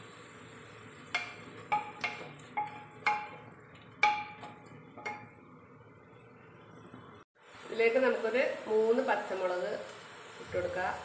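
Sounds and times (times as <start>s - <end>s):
spatula stirring in a pot: 0.6s - 7.0s
spatula knocking on metal pot: 1.1s - 5.4s.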